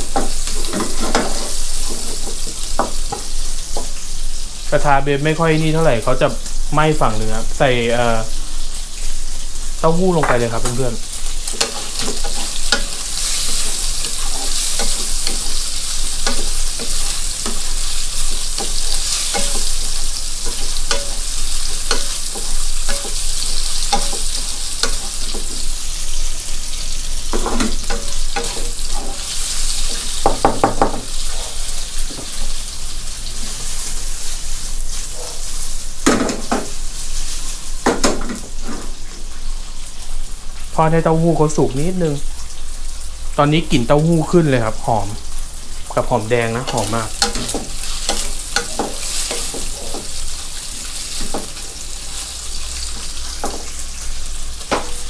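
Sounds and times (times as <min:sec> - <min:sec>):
food sizzling in a wok: 0:00.0 - 0:55.0
wooden spatula scraping a pan: 0:00.1 - 0:03.9, 0:11.4 - 0:25.8, 0:46.6 - 0:53.8.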